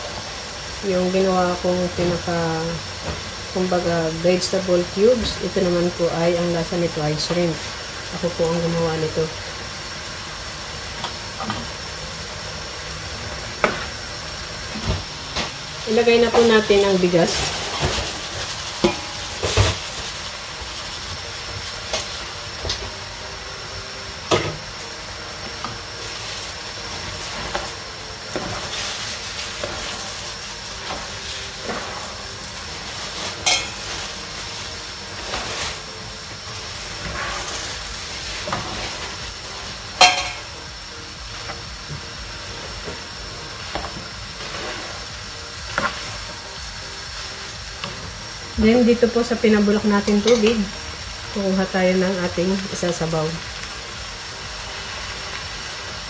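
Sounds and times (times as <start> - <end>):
food sizzling in a frying pan: 0.0 - 56.0
utensils scraping a pan: 30.8 - 34.6, 36.9 - 39.2.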